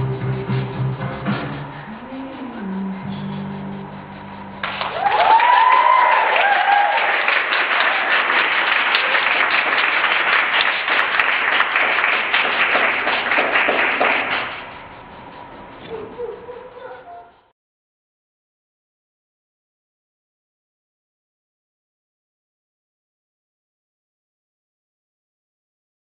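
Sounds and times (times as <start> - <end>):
music: 0.0 - 5.0
audience cheering: 4.6 - 14.7
audience applause: 4.6 - 14.8.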